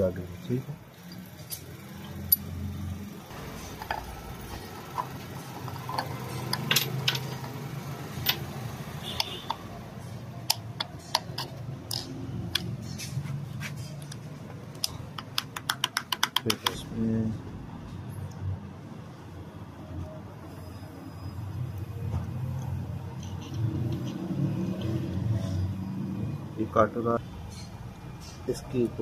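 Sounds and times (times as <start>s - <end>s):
small metal parts clicking: 1.0s - 2.7s, 3.6s - 8.6s, 10.4s - 13.1s, 22.6s - 25.1s.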